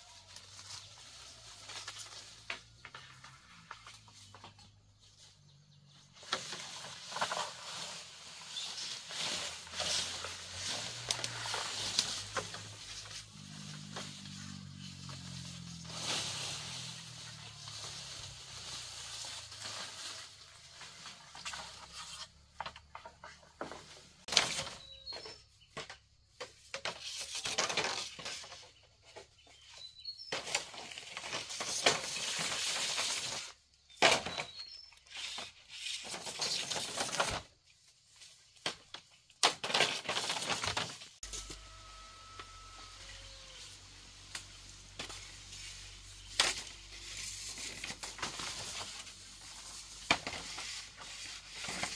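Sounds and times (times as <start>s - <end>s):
bamboo leaves rustling: 0.0s - 51.9s
bamboo stalks knocking and snapping: 6.2s - 28.7s, 30.3s - 37.5s, 38.1s - 41.8s, 44.2s - 51.9s.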